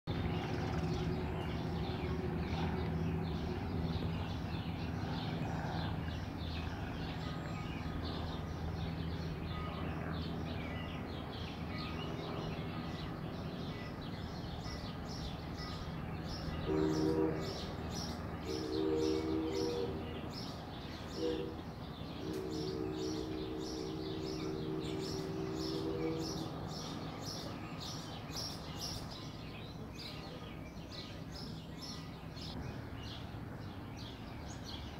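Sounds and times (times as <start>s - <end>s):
birds chirping: 0.1s - 34.9s
steady low hum: 0.1s - 34.9s
distant steam locomotive whistle: 16.6s - 20.3s, 21.1s - 27.1s.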